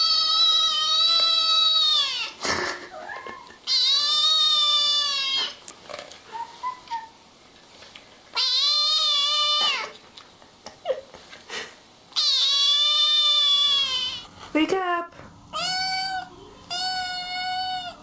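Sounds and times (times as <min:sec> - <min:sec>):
kitten meowing: 0:03.0 - 0:05.6, 0:08.4 - 0:09.9, 0:12.2 - 0:14.2, 0:15.6 - 0:18.0.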